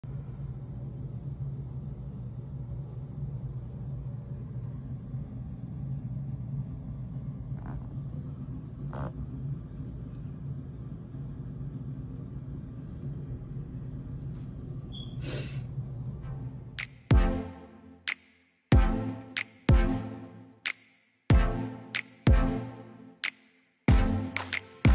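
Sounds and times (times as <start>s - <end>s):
low background rumble: 0.0s - 17.4s.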